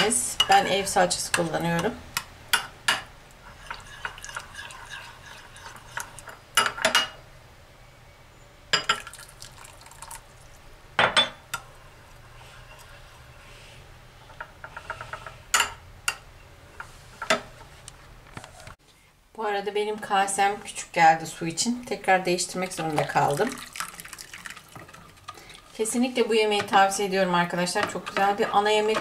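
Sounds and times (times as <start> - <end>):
spoon scraping and tapping bowl: 0.4 - 7.1
water pouring: 9.0 - 10.6, 22.7 - 25.8.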